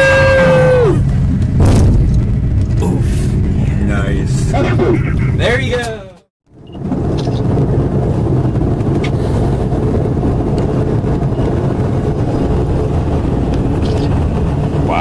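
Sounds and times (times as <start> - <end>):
helicopter hovering: 0.8 - 15.0.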